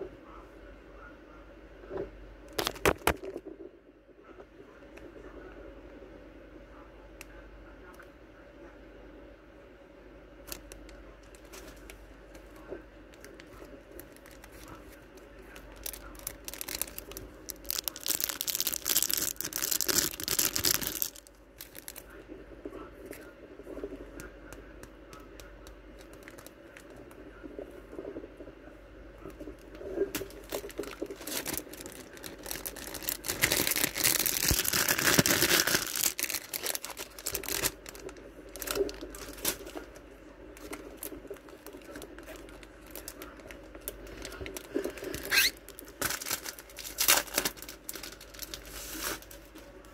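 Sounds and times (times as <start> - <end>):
plastic packaging crinkling: 2.5 - 3.4, 10.5 - 22.2, 26.0 - 27.0, 29.7 - 49.7.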